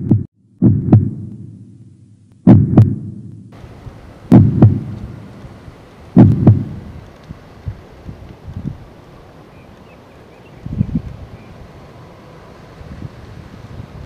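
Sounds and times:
heartbeat thumps: 0:00.0 - 0:01.6, 0:02.4 - 0:03.5, 0:04.3 - 0:05.2, 0:06.2 - 0:06.9
faint steady hiss: 0:03.2 - 0:14.0.

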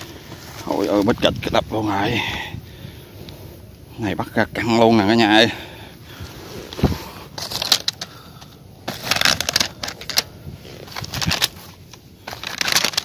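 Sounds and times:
plastic sack crinkling: 0:07.4 - 0:08.1, 0:08.8 - 0:13.0.

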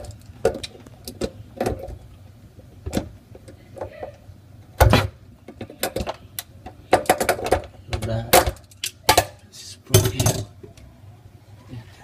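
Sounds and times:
hardware knocking and clattering: 0:04.8 - 0:10.5.

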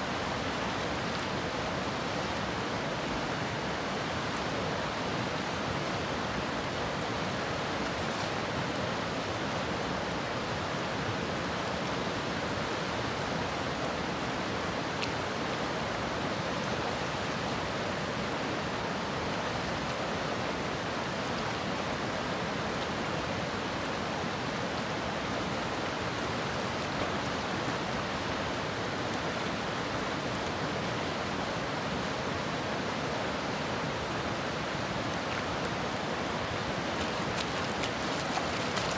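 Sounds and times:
river water rushing: 0:00.0 - 0:38.9.

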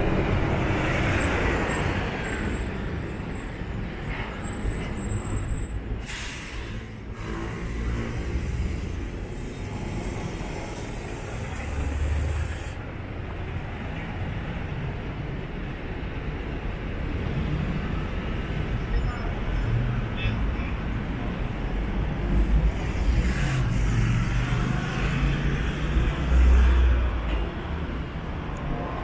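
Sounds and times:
vehicles passing: 0:00.0 - 0:29.0
hiss: 0:06.0 - 0:12.8.

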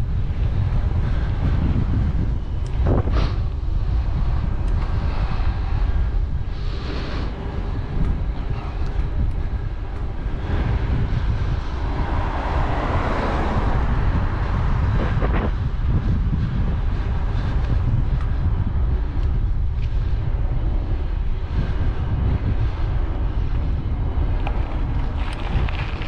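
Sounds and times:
wind rumble on microphone: 0:00.0 - 0:26.0
car passing: 0:06.7 - 0:17.6.

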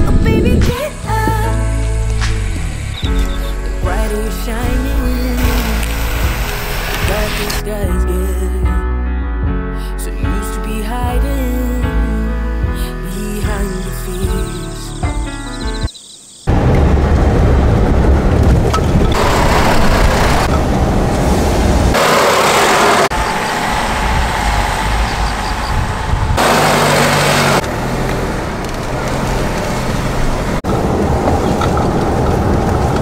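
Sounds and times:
car road and engine rumble: 0:00.0 - 0:08.4, 0:15.2 - 0:33.0.

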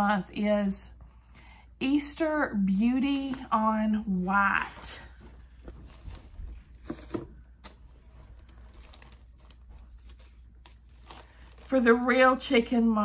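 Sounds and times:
packaging rustling and crinkling: 0:05.2 - 0:12.4.

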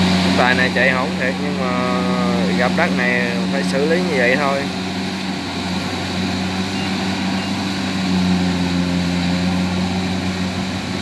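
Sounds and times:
combine harvester diesel engine: 0:00.0 - 0:11.0.

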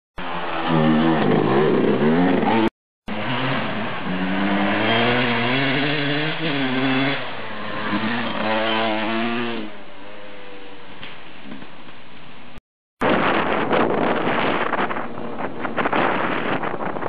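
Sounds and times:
dirt bike engine revving: 0:00.2 - 0:10.6.

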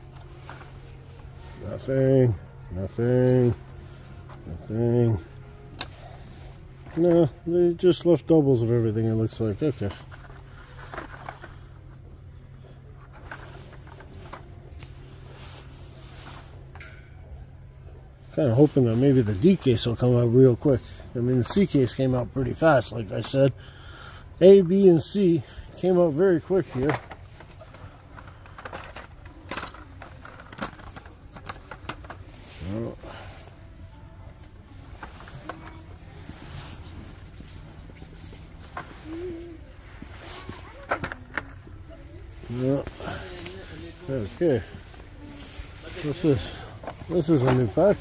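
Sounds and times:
steady low hum: 0:00.0 - 0:48.0
blister packs rustling and clicking: 0:26.1 - 0:48.0.

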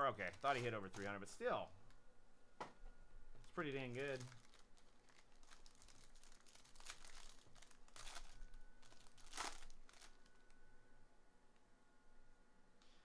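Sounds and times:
foil wrapper crinkling and tearing: 0:00.0 - 0:01.2, 0:03.4 - 0:10.5.

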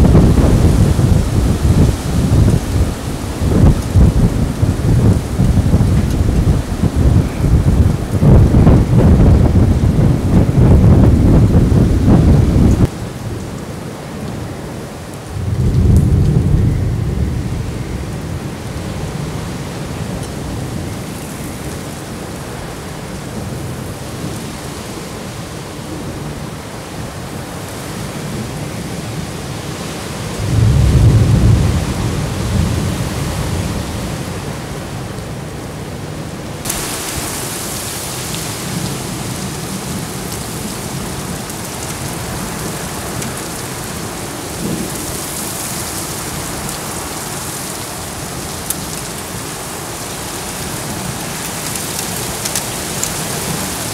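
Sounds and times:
thunder rumble: 0:00.0 - 0:12.9, 0:15.2 - 0:21.6, 0:30.4 - 0:34.4
heavy rain on pavement: 0:00.0 - 0:53.9.

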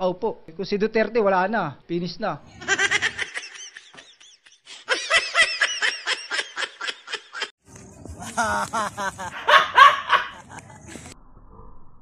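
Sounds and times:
high-pitched snickering laughter: 0:08.2 - 0:11.2.

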